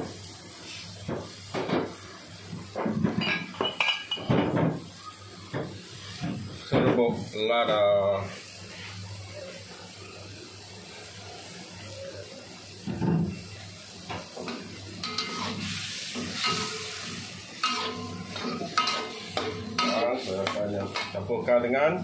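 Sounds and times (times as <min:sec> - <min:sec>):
light sizzle: 0:00.0 - 0:22.0
metal spatula scraping a wok: 0:15.0 - 0:21.2.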